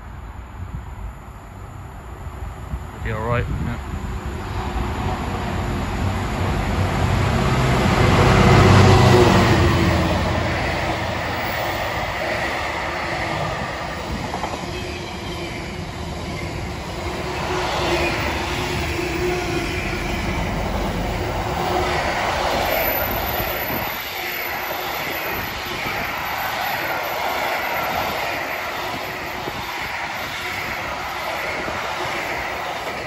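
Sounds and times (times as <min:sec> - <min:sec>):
diesel locomotive engine: 0:00.0 - 0:33.0
high wheel squeal: 0:17.4 - 0:33.0.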